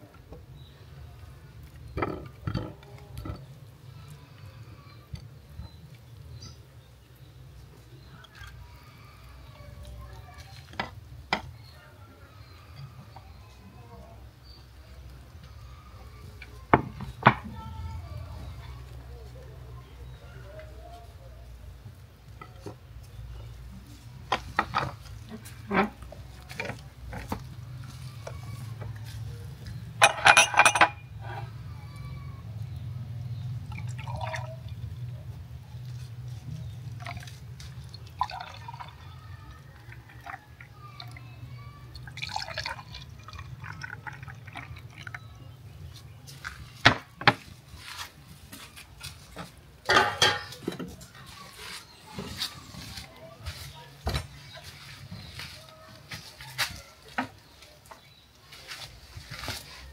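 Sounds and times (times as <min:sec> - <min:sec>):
plates knocking and clicking: 0:30.0 - 0:31.0, 0:49.9 - 0:50.9.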